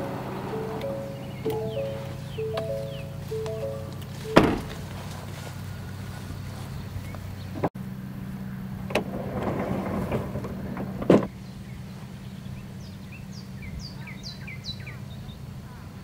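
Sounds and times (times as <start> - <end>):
bird chirps: 0.0 - 5.2
drawer thumping against stop: 4.4 - 4.7.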